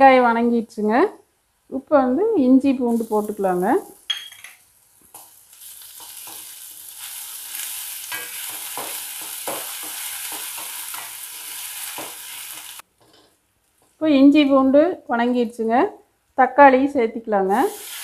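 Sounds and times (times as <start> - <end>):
onions sizzling in hot oil: 2.8 - 12.9, 17.5 - 18.0
spatula scraping a pan: 6.0 - 13.3.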